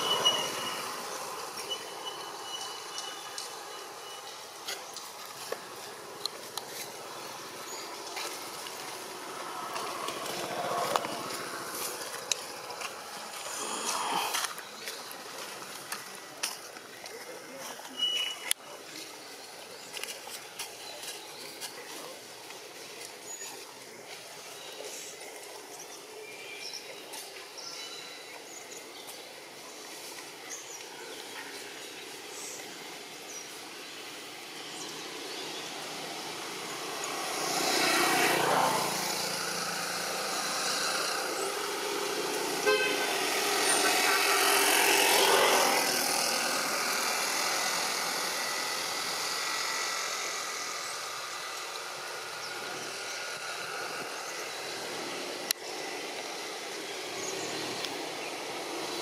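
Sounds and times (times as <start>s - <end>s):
motor vehicle passing: 0.0s - 16.4s, 33.0s - 59.0s.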